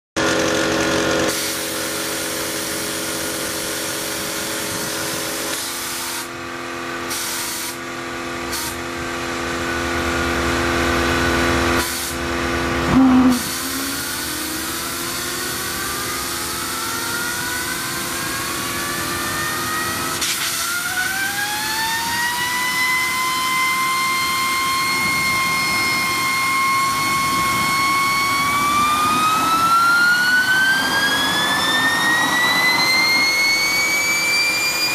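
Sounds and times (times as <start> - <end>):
turbine whine: 0.2 - 34.9
compressed air blasts: 1.2 - 6.4, 7.0 - 7.8, 8.4 - 9.0, 11.7 - 12.3, 12.9 - 15.8, 20.1 - 20.7.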